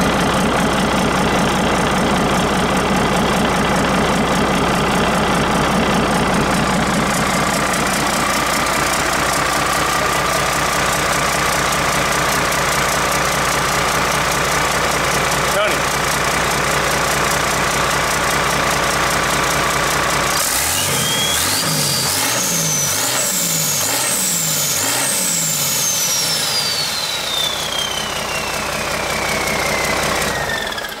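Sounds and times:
diesel engine revving: 0.0s - 31.0s
turbocharger whine: 18.2s - 31.0s.

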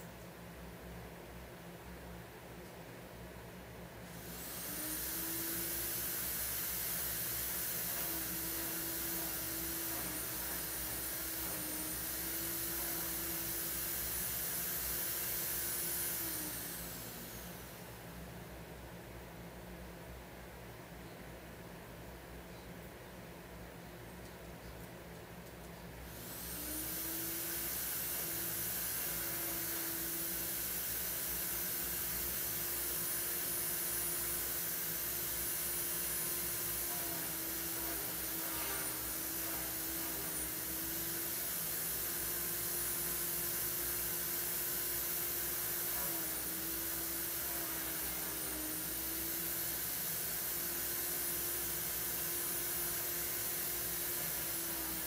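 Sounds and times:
electric motor humming and whining: 4.1s - 18.2s, 26.1s - 55.0s.

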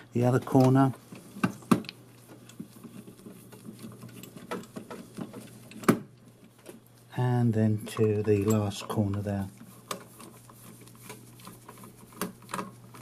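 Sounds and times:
screwdriver ticking and scraping: 0.5s - 6.8s, 7.8s - 13.0s.

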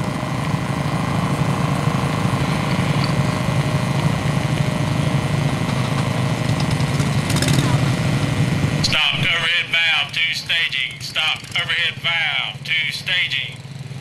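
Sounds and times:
lawnmower engines running: 0.0s - 14.0s.

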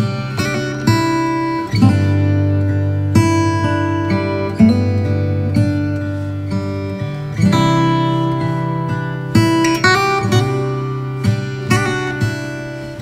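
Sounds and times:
plucked string chords: 0.0s - 13.0s.

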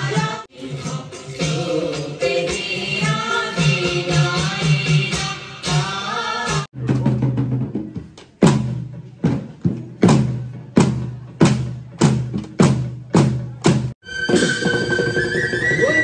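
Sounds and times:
deep drum beats: 6.7s - 15.9s.

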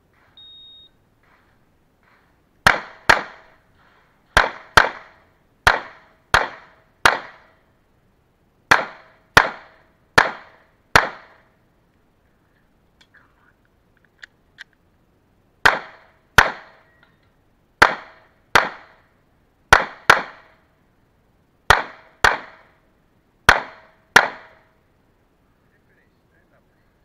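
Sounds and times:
pistol shots: 2.6s - 3.6s, 4.4s - 7.5s, 8.7s - 11.4s, 15.6s - 16.8s, 17.8s - 19.0s, 19.7s - 20.6s, 21.7s - 22.7s, 23.5s - 24.6s.

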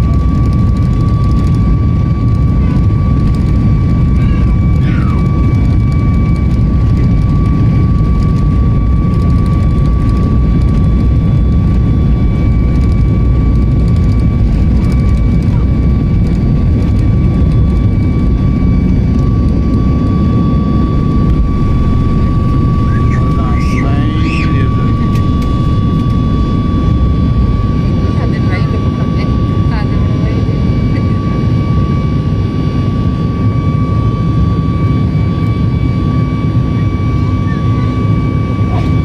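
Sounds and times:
engine and airflow rumble: 0.0s - 39.0s
thin high whine: 19.8s - 28.0s.

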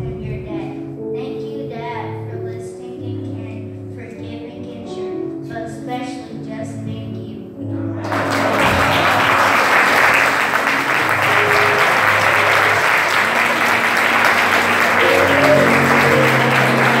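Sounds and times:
congregation applauding: 8.0s - 17.0s
instrumental music sustained low notes: 10.8s - 17.0s.

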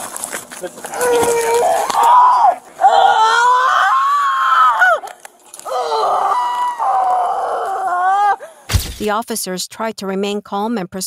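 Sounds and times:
woman screaming: 0.9s - 8.6s.

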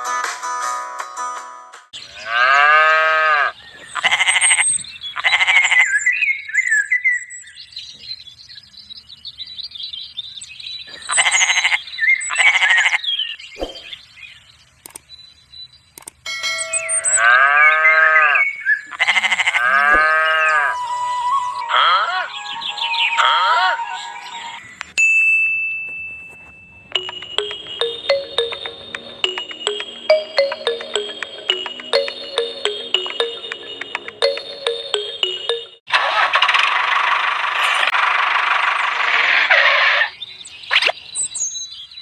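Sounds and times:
sheep bleating: 17.2s - 20.8s.

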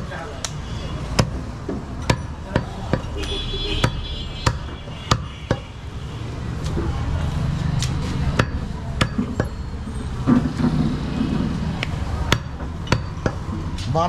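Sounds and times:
murmur of background voices: 0.0s - 14.0s
knife chopping meat on wooden block: 3.8s - 5.7s.

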